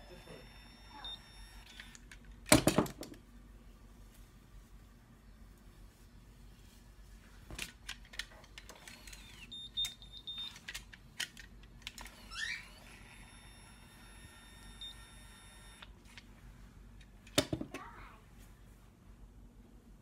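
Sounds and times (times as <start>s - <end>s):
high beep: 0.0s - 1.7s, 13.3s - 15.8s.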